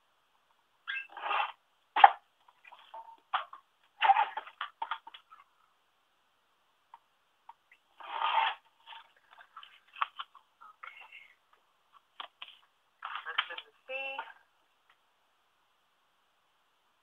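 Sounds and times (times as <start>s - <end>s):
paper rustling and light clatter: 12.0s - 13.7s.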